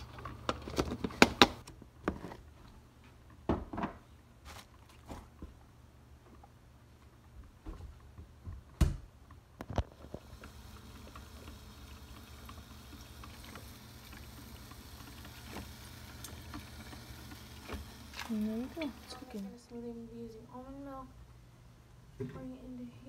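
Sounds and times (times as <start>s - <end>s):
coffee maker humming and hissing: 0.0s - 1.6s, 9.6s - 20.2s.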